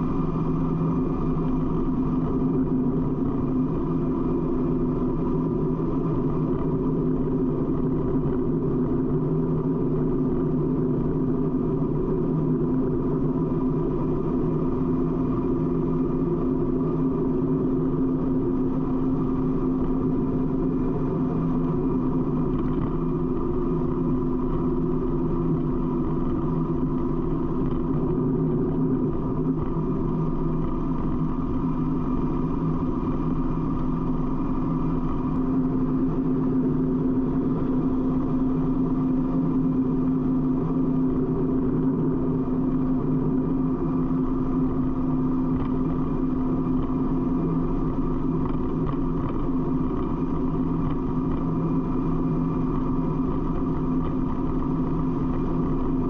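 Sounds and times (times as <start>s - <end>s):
road and wind noise: 0.0s - 56.0s.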